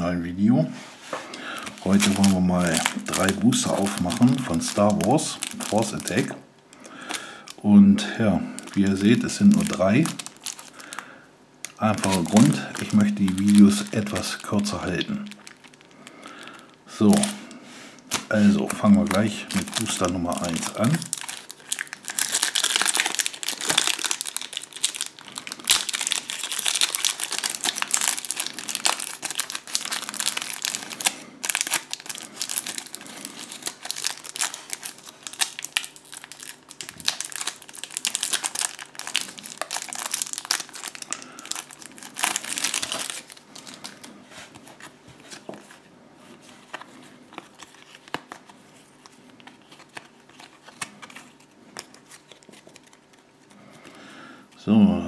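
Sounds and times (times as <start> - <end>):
cards rustling and clicking: 1.6 - 6.3, 18.1 - 54.0
foil wrapper crinkling and tearing: 1.6 - 6.4, 8.5 - 17.4, 18.1 - 45.5, 46.7 - 53.6.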